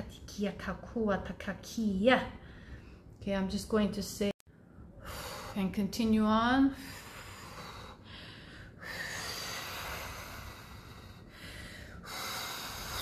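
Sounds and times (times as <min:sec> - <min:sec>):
woman breathing: 0:02.3 - 0:03.2, 0:04.5 - 0:05.7, 0:06.7 - 0:13.0.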